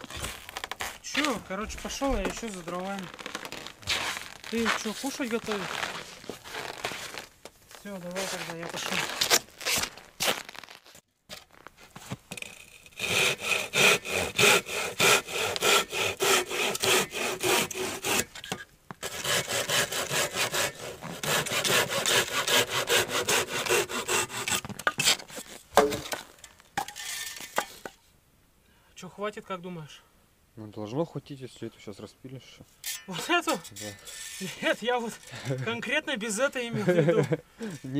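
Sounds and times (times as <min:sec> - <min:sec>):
hand saw cutting log: 0:12.5 - 0:25.5.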